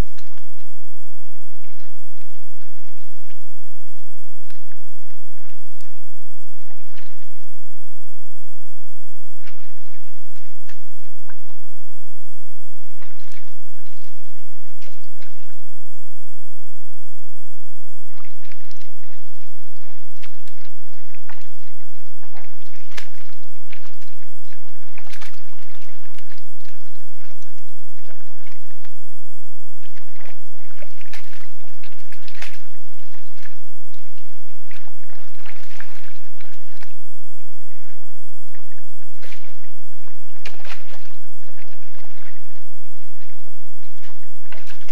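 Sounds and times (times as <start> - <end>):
boar squelching in mud: 18.1 - 28.9, 29.8 - 44.9.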